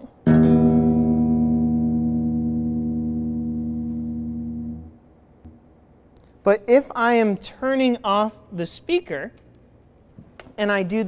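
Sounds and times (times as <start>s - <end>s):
guitar strings damped by hand: 0.0s - 5.8s
electric guitar chord ringing: 0.3s - 5.1s.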